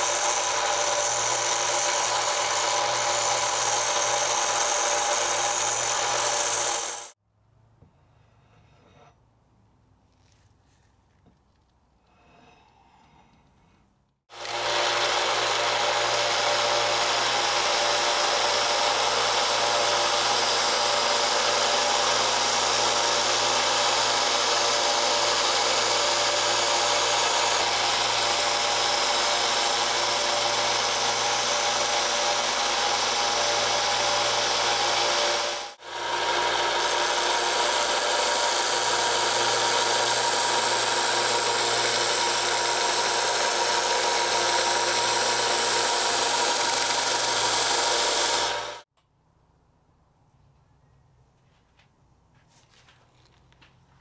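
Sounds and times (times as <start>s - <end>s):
belt sander grinding steel: 0.0s - 7.2s, 14.3s - 48.8s.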